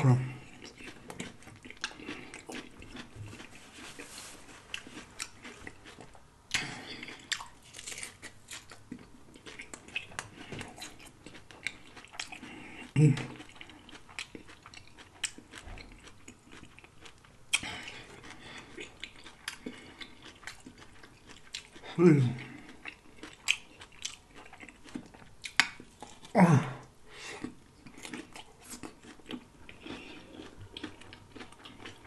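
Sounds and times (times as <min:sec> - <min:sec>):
crunching and chewing chips: 0:00.0 - 0:32.0
short vocal sound: 0:21.9 - 0:22.5, 0:26.3 - 0:26.9.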